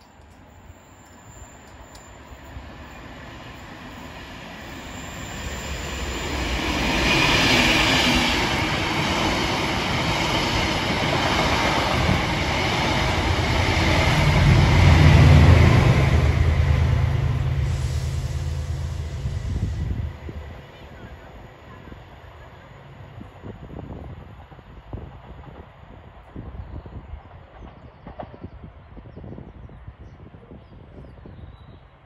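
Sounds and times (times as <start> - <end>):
train wheels rushing on rails: 0.0 - 29.3
diesel locomotive rumble: 6.1 - 24.2.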